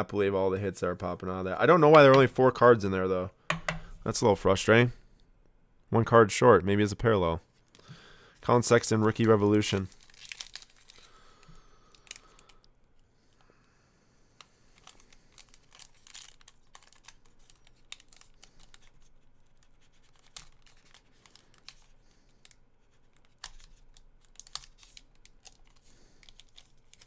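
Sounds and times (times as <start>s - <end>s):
foil wrapper crinkling: 8.7s - 12.7s, 14.6s - 27.0s.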